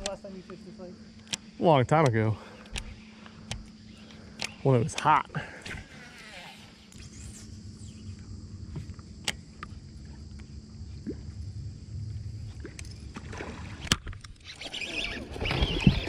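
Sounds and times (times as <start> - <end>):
fishing reel and rod: 1.2 - 10.5, 12.4 - 16.0
low rumble: 7.6 - 13.8.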